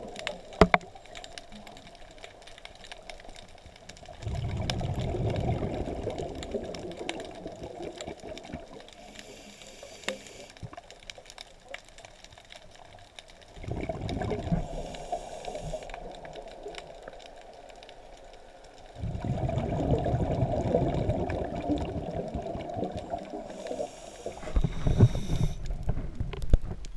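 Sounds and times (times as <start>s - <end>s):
faint underwater clicking: 0.0s - 26.9s
diver's bubbles rushing underwater: 4.1s - 8.8s, 13.5s - 17.7s, 18.9s - 26.6s.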